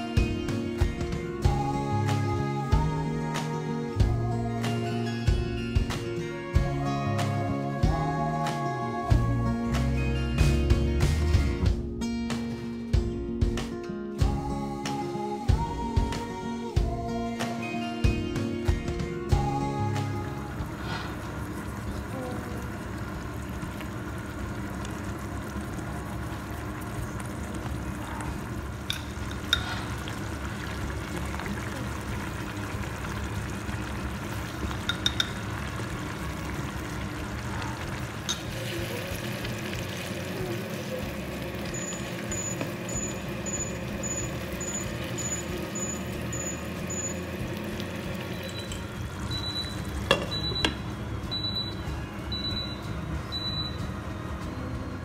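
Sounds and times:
sauce simmering in a pan: 20.2s - 50.6s.

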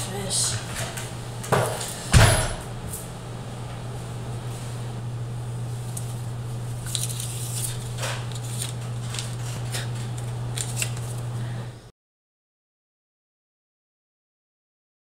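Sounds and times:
steady low hum: 0.0s - 11.9s
paper crinkling: 5.7s - 11.4s.

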